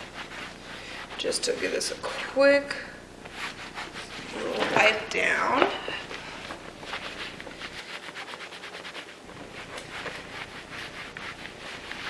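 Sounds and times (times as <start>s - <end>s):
wipe scrubbing sneaker: 0.0s - 1.9s, 3.3s - 4.7s, 6.7s - 12.0s.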